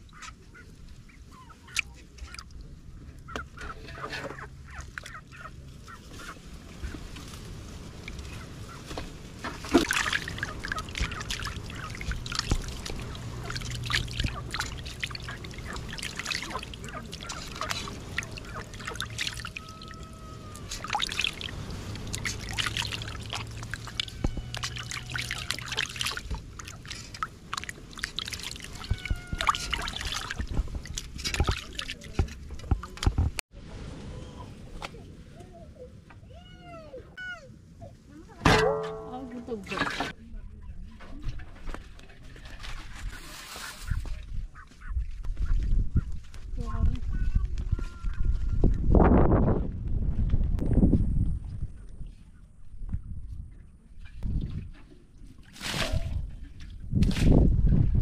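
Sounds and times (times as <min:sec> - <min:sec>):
water splashing in a metal basin: 0:09.5 - 0:33.2, 0:38.5 - 0:40.2.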